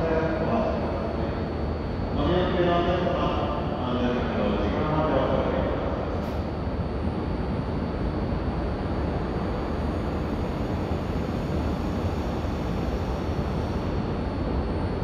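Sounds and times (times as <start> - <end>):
thin high whine: 0.0 - 15.0.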